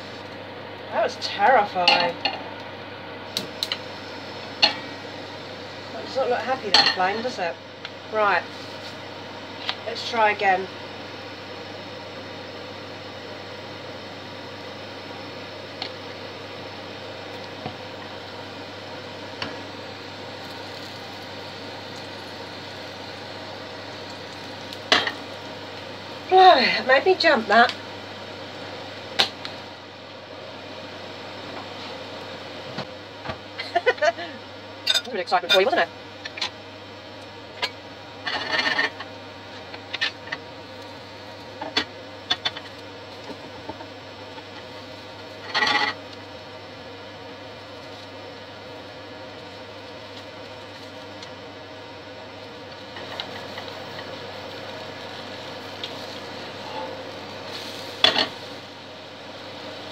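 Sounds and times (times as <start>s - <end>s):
steady low buzz: 0.0s - 50.1s
batter frying in a pan: 0.0s - 59.9s.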